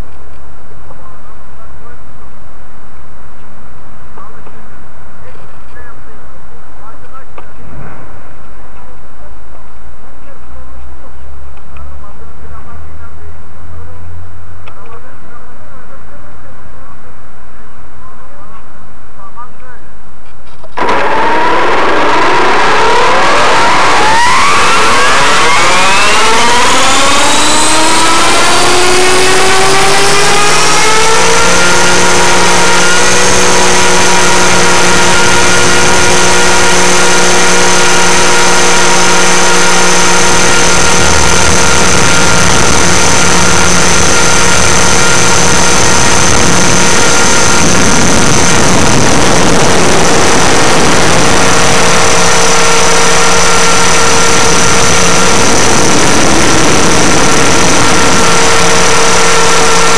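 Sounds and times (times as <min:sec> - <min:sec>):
rc helicopter motor whining: 0:20.7 - 0:59.9.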